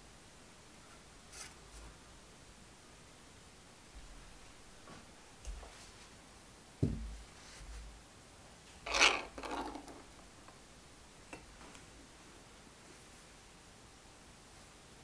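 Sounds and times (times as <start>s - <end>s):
dull knock on can: 6.8s - 7.1s
can lid ripping open: 8.9s - 10.1s.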